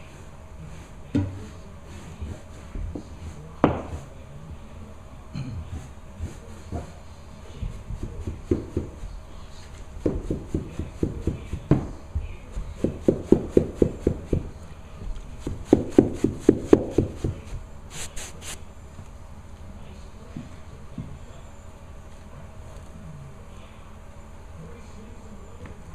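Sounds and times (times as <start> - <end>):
spray bottle hissing squirts: 17.9 - 18.6.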